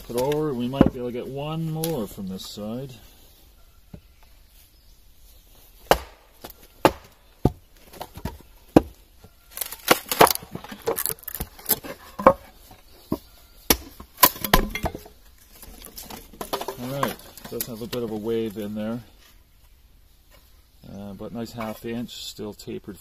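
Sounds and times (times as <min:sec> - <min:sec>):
wood cracking and splitting: 0:05.8 - 0:12.8, 0:13.7 - 0:18.5.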